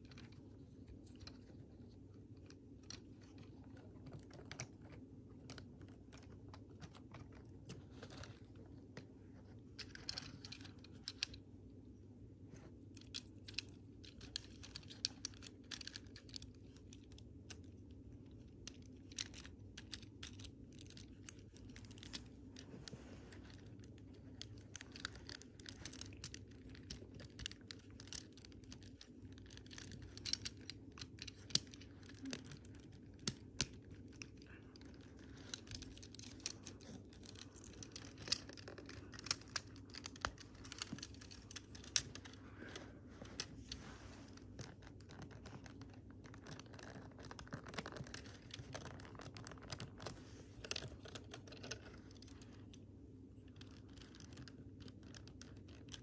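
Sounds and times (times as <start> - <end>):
faint low hum: 0.0 - 56.0
plastic parts clicking together: 12.8 - 43.6.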